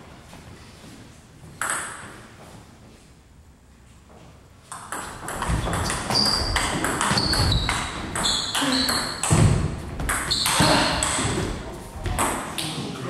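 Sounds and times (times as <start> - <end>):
shoes squeaking on wooden floor: 5.4 - 12.2.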